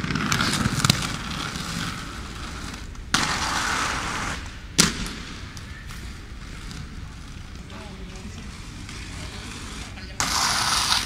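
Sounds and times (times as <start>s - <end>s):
skate wheels rolling on stone: 0.0s - 11.0s.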